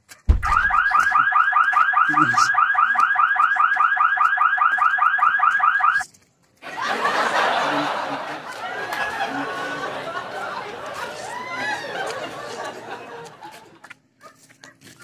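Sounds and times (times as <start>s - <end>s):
electronic alarm siren warbling: 0.4s - 6.0s.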